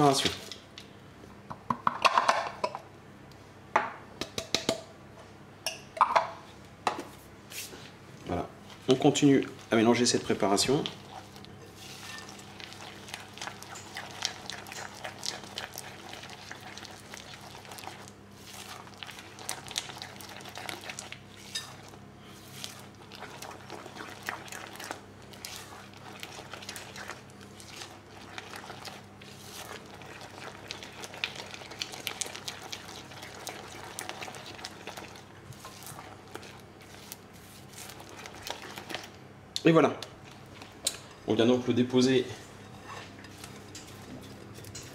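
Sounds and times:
spatula scraping glass bowl: 11.7 - 12.4.

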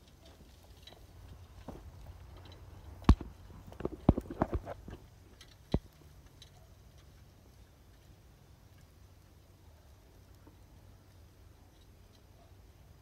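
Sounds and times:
sharp knocks and clatters: 0.8 - 5.9.

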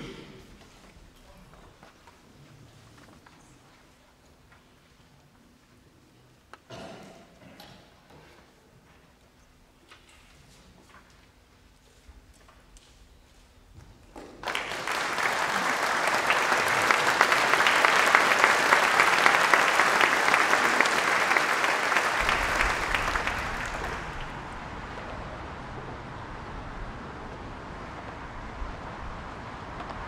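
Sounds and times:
audience applauding: 14.4 - 25.6
road traffic rumble: 18.8 - 30.0.

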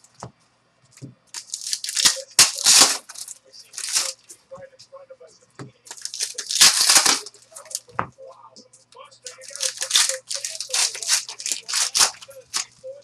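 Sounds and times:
cards sliding and rustling: 1.4 - 4.2, 5.9 - 7.8, 9.3 - 12.7.

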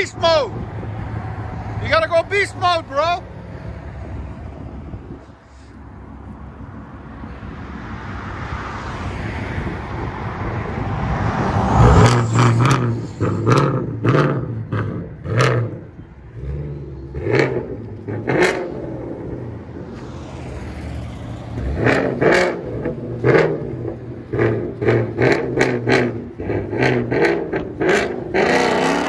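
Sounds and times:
car engine revving: 6.2 - 29.0.

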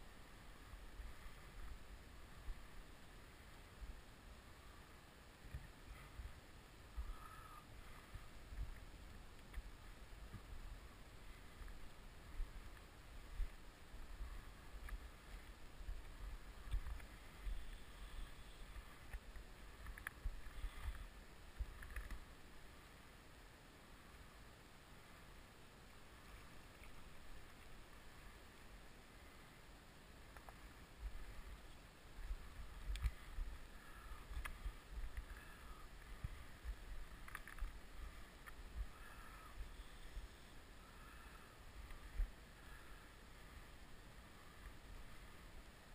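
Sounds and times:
river flowing: 0.0 - 45.9
small sharp clicks: 18.7 - 21.0, 32.8 - 33.2, 37.2 - 37.8.

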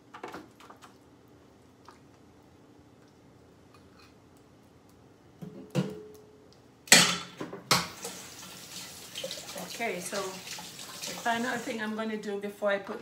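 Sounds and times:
tap water splashing into sink: 7.7 - 11.4.

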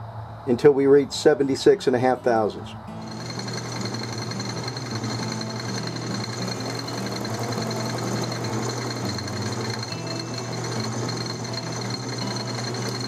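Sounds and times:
milling machine hum and whine: 2.9 - 13.0.

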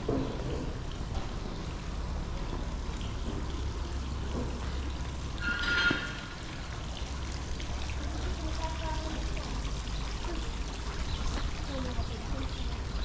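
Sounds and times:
low street rumble: 0.0 - 13.0
brief high-pitched squeal: 5.4 - 6.2.

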